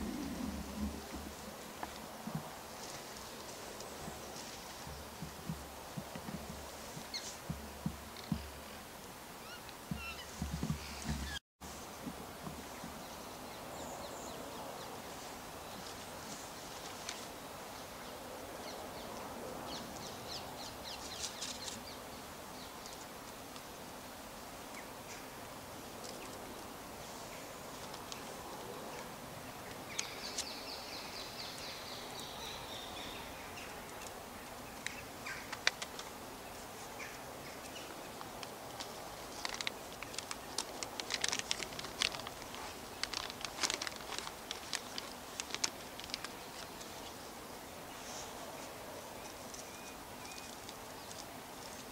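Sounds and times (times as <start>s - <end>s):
steady background hiss: 0.0s - 51.9s
small birds calling: 9.4s - 11.4s, 28.9s - 38.2s.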